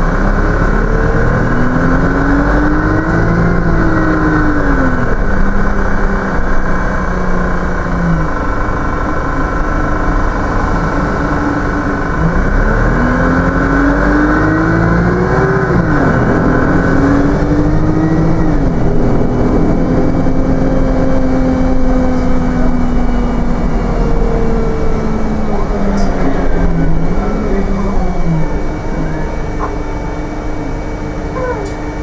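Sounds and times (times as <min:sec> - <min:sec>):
bus diesel engine: 0:00.0 - 0:32.0.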